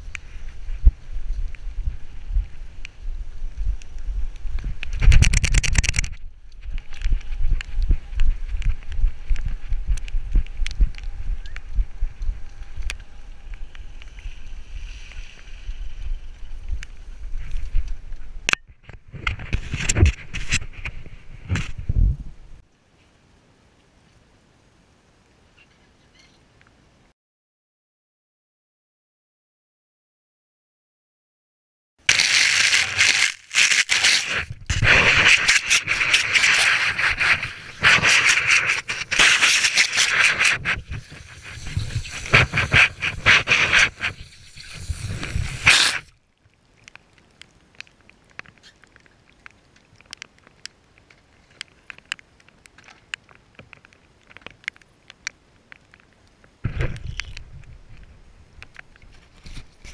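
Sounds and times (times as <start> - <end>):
camera handling rubbing and rattling: 4.9 - 6.2, 18.9 - 21.8, 32.1 - 46.1, 58.7 - 59.9.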